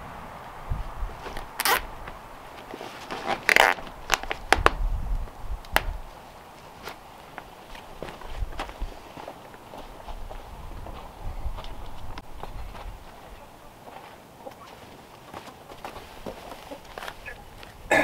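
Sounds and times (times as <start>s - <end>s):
zip ties being pulled tight: 1.4s - 1.9s, 3.2s - 3.9s.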